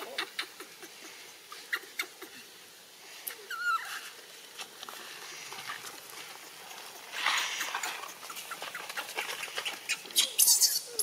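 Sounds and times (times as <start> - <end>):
baby monkey squeaks: 9.6 - 11.0.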